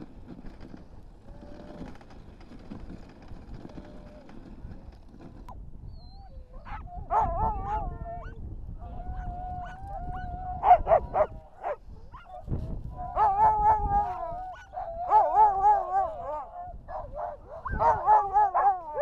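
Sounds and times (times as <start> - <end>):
dogs yipping and barking: 6.0 - 8.4, 9.1 - 19.0
dogs howling and yelping: 6.0 - 19.0.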